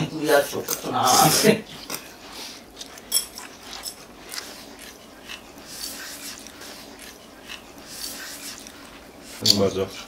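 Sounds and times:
utensils clinking on dishes: 2.9s - 4.1s.

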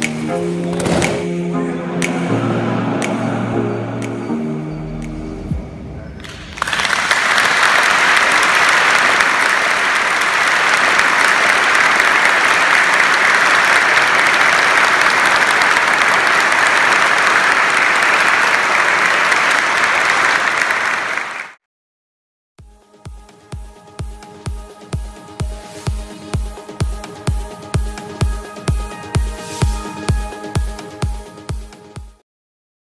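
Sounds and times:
crowd applauding: 6.2s - 21.6s.

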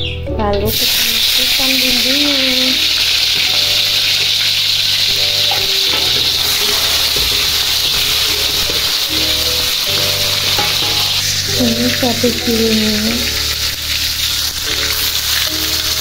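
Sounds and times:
vegetables sizzling in hot oil: 0.7s - 16.0s.

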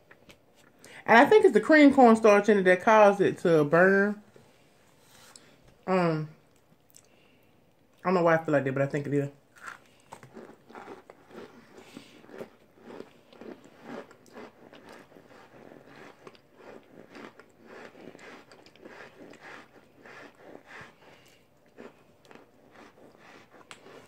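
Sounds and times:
crunchy squeaky chewing: 9.6s - 24.0s.

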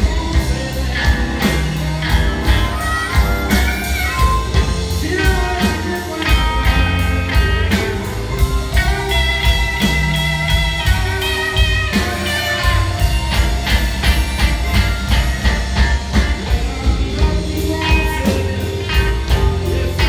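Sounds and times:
live blues band playing: 0.0s - 20.0s.

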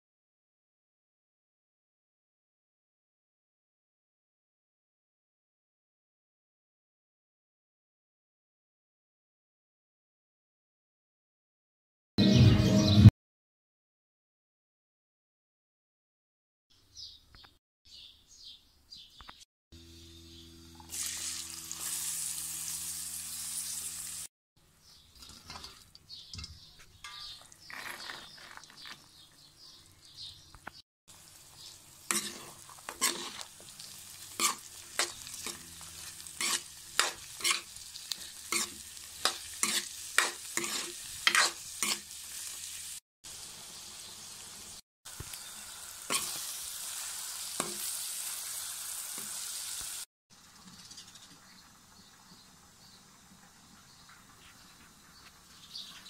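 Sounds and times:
vegetables sizzling in oil: 20.7s - 24.3s, 31.1s - 50.1s
spatula scraping metal pan: 32.0s - 42.1s.

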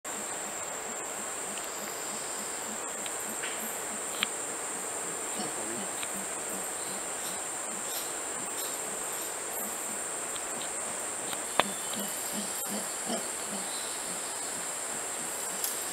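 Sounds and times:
faint low pulsing: 0.1s - 15.9s
high-pitched insect drone: 0.1s - 15.9s
sharp click: 3.0s - 4.3s.

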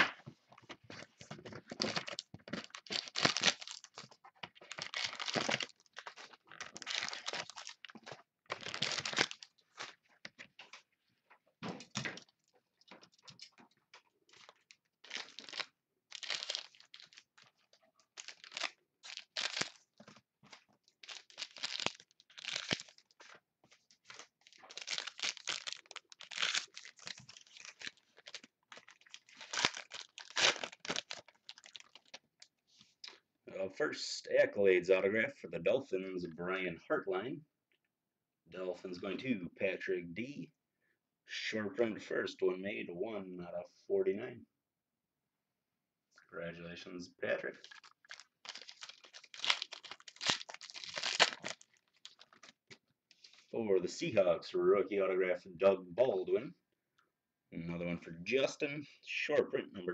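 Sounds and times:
plastic wrapping crinkling and tearing: 1.6s - 10.1s, 14.3s - 32.5s, 47.6s - 53.4s.

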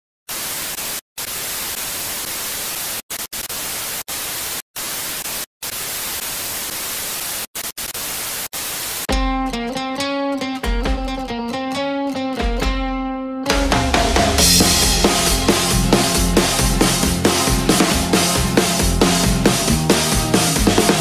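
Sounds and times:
television static hiss: 0.3s - 9.1s
music: 9.1s - 21.0s.

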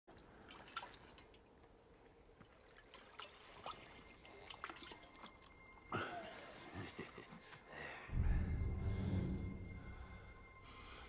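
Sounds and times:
small wet clicks: 0.1s - 5.5s
water trickling: 0.1s - 5.8s.

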